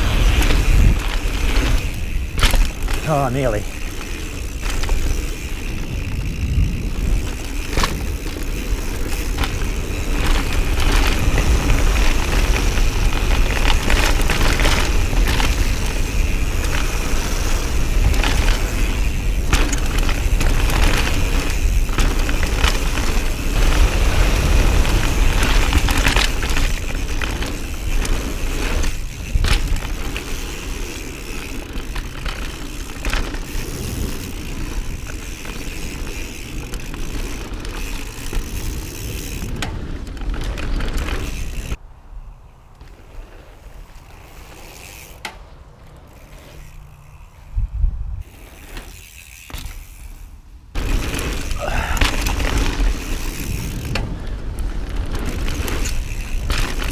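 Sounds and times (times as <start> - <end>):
bike knocks and rattles: 0.0 - 41.8, 44.0 - 47.6, 48.2 - 56.9
bike tyre noise: 0.0 - 56.9
wind on microphone: 5.6 - 8.3, 47.4 - 48.3.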